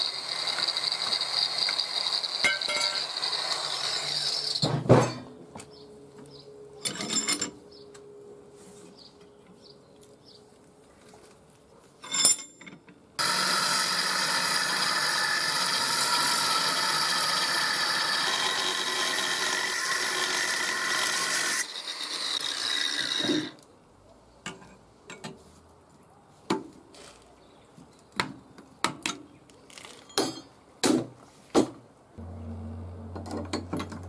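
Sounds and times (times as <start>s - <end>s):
angle grinder cutting steel: 0.0s - 4.7s, 13.2s - 23.6s
metal clank: 4.6s - 5.4s, 33.0s - 34.0s.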